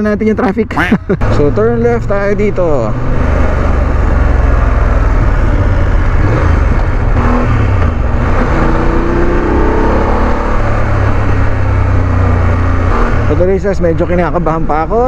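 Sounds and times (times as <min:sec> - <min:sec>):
road and wind rush: 0:00.0 - 0:15.0
motorcycle engine accelerating: 0:01.2 - 0:15.0.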